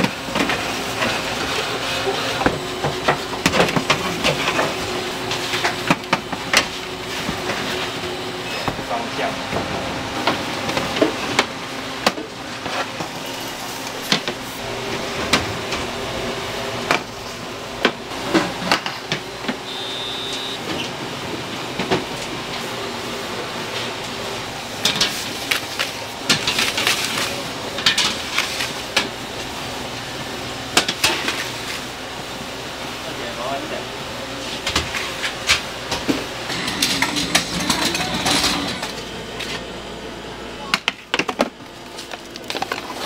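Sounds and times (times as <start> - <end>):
machine hum: 1.4 - 24.8, 36.4 - 40.6
short high beep: 19.7 - 20.6.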